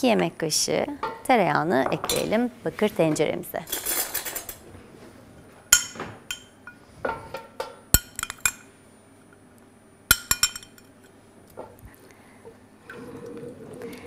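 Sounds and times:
metal spoon clinking on glass: 10.1 - 11.1.

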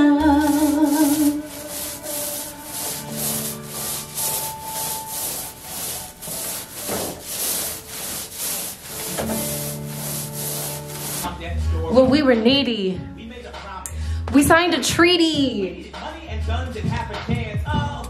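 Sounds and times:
paint roller on wall: 0.0 - 11.3.

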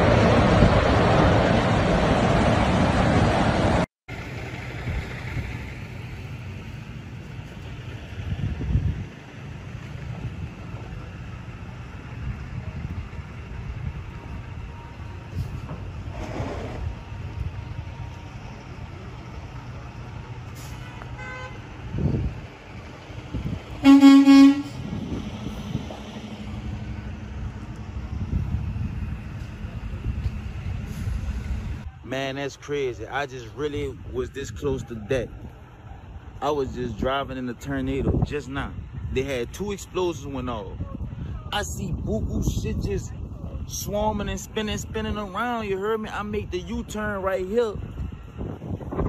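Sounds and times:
car driving: 0.0 - 39.2
low rumble of wind: 0.0 - 49.0
wind blowing on microphone: 8.1 - 9.2, 21.4 - 31.9, 36.9 - 49.0
vehicle horn honking: 20.8 - 21.7, 23.8 - 24.8.

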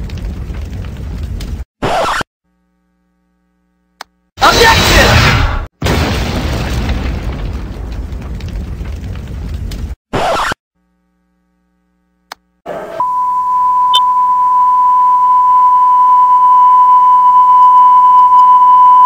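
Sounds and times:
alarm clock long high beep: 13.0 - 19.0.

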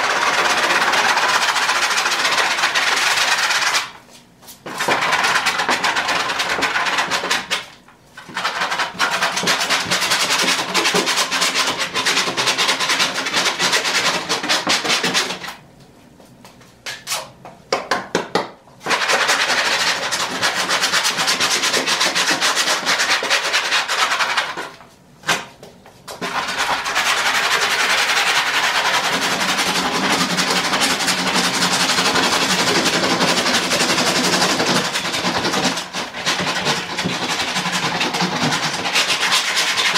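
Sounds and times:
brush scrubbing foam: 0.0 - 4.0, 18.9 - 24.7, 26.2 - 39.9.

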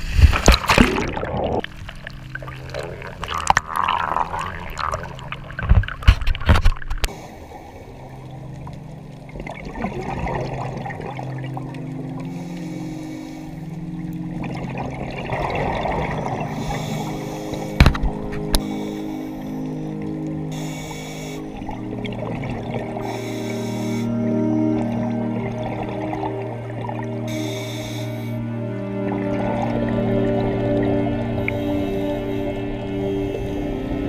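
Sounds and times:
splash into water: 0.0 - 1.7
underwater bubbling and gurgling: 0.0 - 34.0
loud bubble bursts: 0.2 - 1.7, 2.4 - 5.4.

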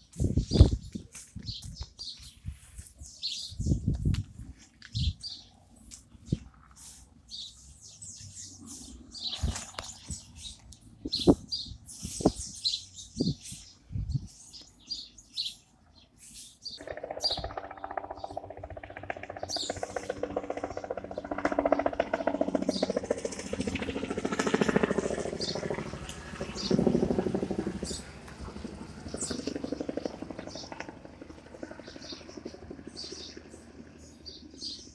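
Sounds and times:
birds chirping: 0.0 - 34.9
helicopter rotor and engine: 16.8 - 34.9.

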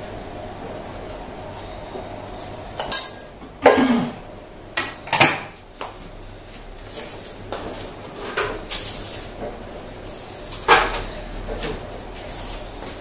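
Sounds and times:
pots and utensils clattering: 2.8 - 4.2, 4.8 - 6.0, 6.9 - 9.5, 10.5 - 13.0.

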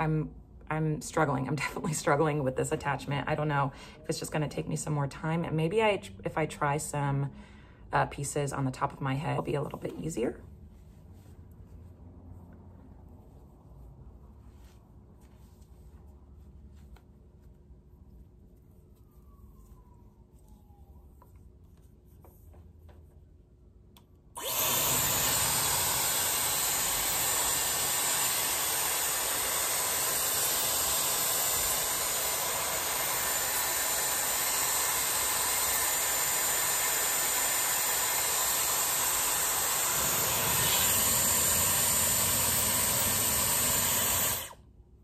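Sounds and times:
hair styler motor and air blowing: 24.4 - 44.6.

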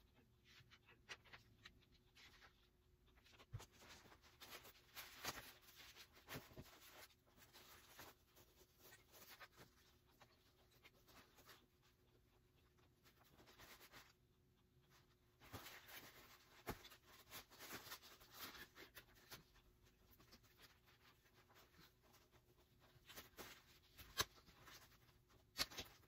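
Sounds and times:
fabric rustling: 3.2 - 12.0, 14.9 - 26.0.

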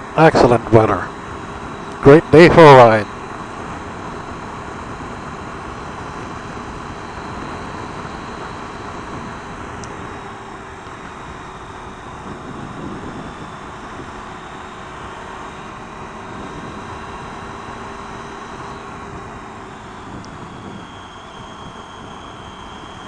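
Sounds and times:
motorcycle engine running: 0.0 - 23.0
wind rushing over microphone: 11.0 - 14.3, 18.9 - 23.0.

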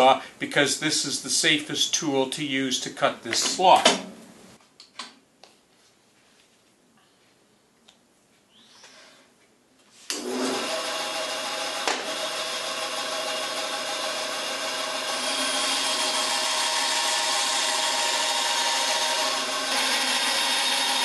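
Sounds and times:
bandsaw running with hum: 10.1 - 21.0.

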